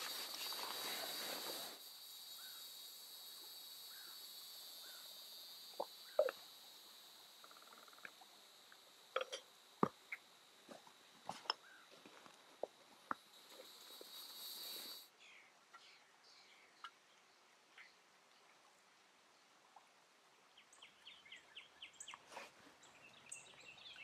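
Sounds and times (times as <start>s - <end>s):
rustling: 0.0s - 1.8s
high insect drone: 0.0s - 15.1s
faint insect chirps: 0.0s - 18.0s, 19.2s - 24.0s.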